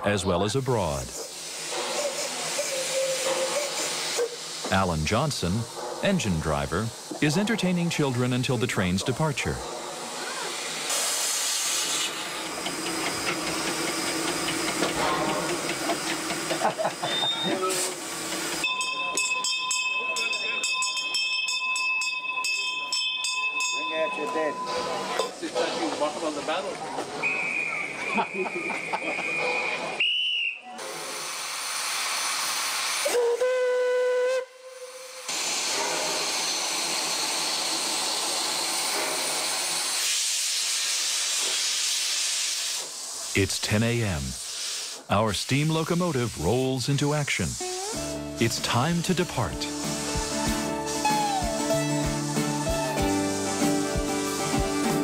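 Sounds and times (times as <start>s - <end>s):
steam locomotive hissing: 0.0s - 19.5s, 23.8s - 55.0s
steam whistle blast: 1.6s - 4.2s, 16.9s - 18.0s, 27.2s - 31.3s, 32.7s - 37.3s, 49.7s - 54.5s
hand bell ringing: 18.6s - 24.7s.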